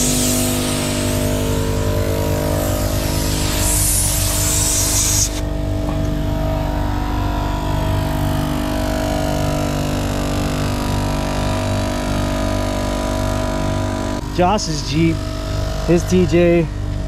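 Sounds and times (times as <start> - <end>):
loud air hiss: 0.0 - 5.5
air compressor pulsing: 0.0 - 17.0.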